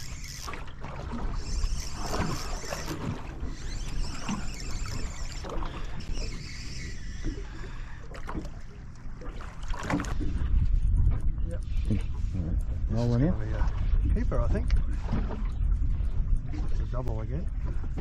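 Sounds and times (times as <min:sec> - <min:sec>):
water lapping against boat hull: 0:00.0 - 0:18.0
low rumble: 0:07.0 - 0:18.0.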